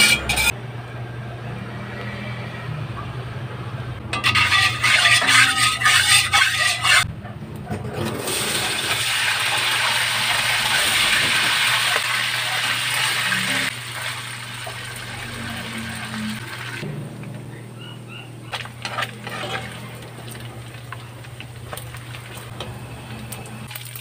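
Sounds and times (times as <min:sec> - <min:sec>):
pork fat frying in oil: 0:08.2 - 0:16.8, 0:18.5 - 0:24.0.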